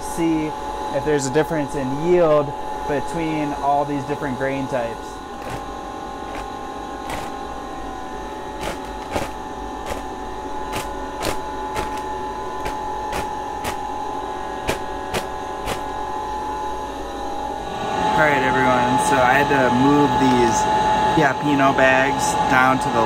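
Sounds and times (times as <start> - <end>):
machine hum: 0.0 - 23.0
plastic bags crackling: 5.3 - 16.1.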